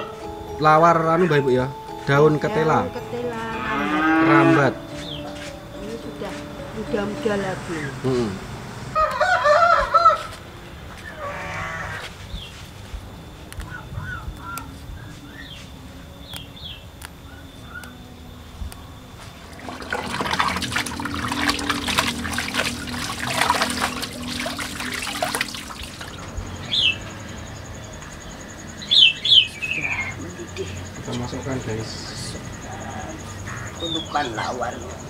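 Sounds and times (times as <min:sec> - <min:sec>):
small birds chirping: 0:13.5 - 0:18.0, 0:24.2 - 0:35.0
hands splashing leaves in water: 0:19.5 - 0:26.3.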